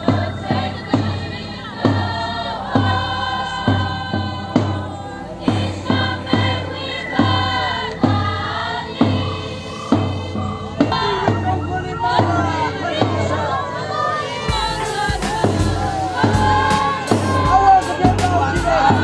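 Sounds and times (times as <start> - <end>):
group singing a hymn: 0.0 - 19.0
steady struck beat: 5.5 - 19.0.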